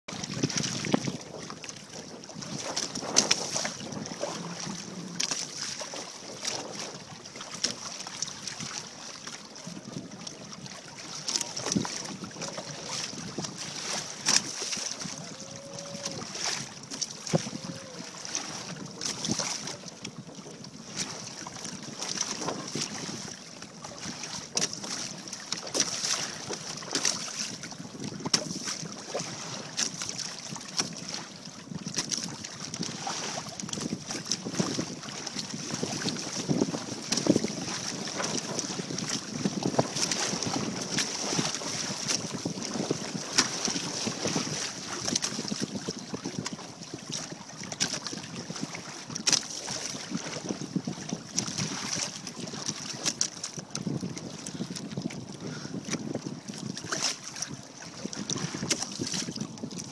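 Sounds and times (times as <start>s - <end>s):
wind buffeting microphone: 0.1s - 7.2s, 11.5s - 23.4s, 29.9s - 49.4s, 53.7s - 59.9s
water splashing against hull: 0.1s - 59.9s.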